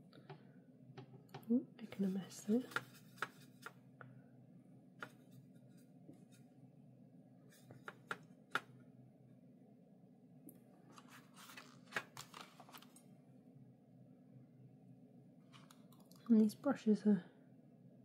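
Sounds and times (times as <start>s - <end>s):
low room hum: 0.0s - 18.0s
soft scratchy brush strokes: 1.8s - 3.8s, 5.1s - 6.6s.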